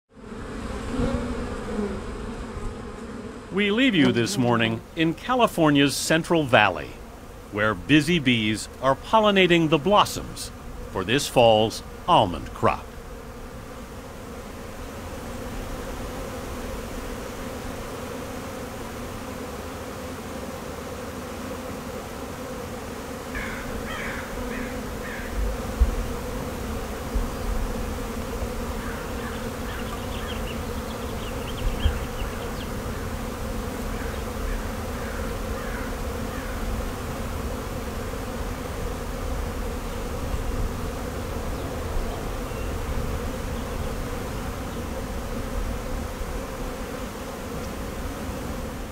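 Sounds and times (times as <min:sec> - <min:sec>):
bees buzzing: 0:00.1 - 0:48.9
bird chirping: 0:29.1 - 0:32.8, 0:42.4 - 0:42.8.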